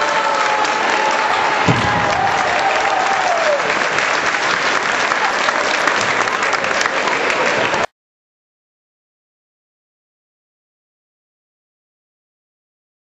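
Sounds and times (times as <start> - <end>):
audience applauding: 0.0 - 7.9
low thud: 1.6 - 2.6.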